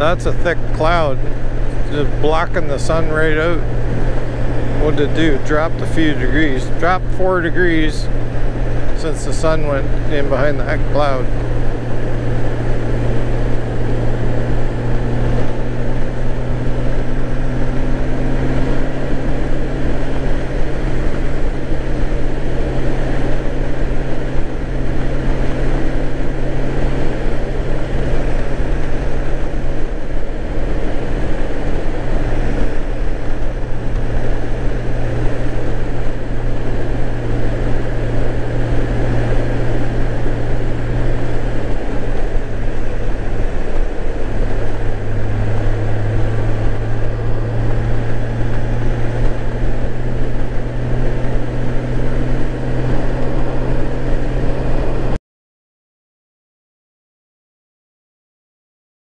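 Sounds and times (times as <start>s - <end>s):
motorcycle engine cruising: 0.0s - 55.2s
wind noise: 0.0s - 55.2s.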